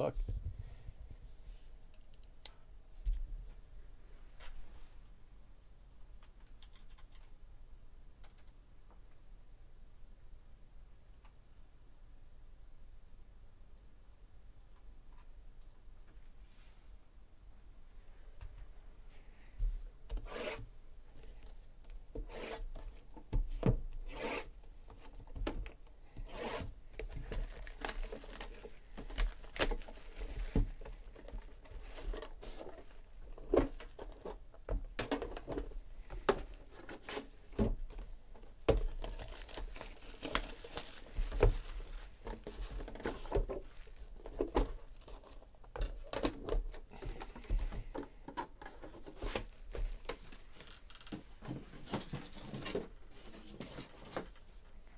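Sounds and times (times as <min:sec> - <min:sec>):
cardboard boxes rubbing and sliding: 0:20.2 - 0:20.7, 0:22.2 - 0:22.7, 0:24.1 - 0:24.5, 0:26.2 - 0:26.8
plastic shrink-wrap tearing: 0:27.3 - 0:30.2, 0:38.9 - 0:42.4.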